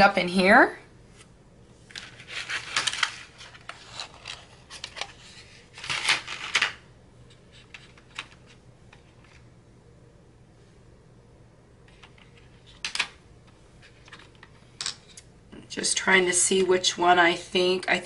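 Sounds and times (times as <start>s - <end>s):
colored pencils clattering: 1.9s - 6.8s.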